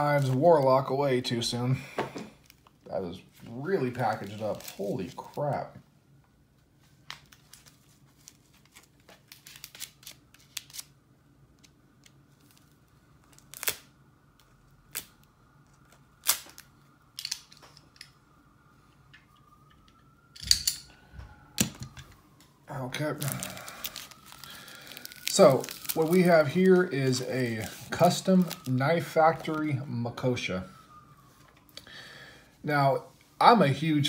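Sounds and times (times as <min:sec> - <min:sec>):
wrapping rustling and tearing: 0:00.0 - 0:01.5, 0:02.3 - 0:05.8, 0:06.8 - 0:11.0, 0:11.6 - 0:17.8, 0:21.6 - 0:29.9
packaging clicks and snaps: 0:23.2 - 0:26.2.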